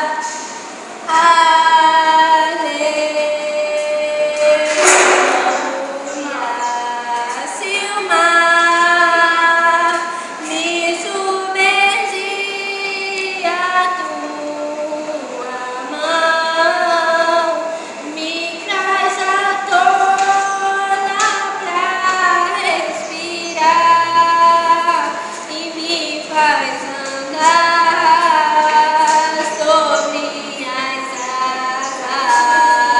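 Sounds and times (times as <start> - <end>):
woman singing long notes: 1.1 - 32.9.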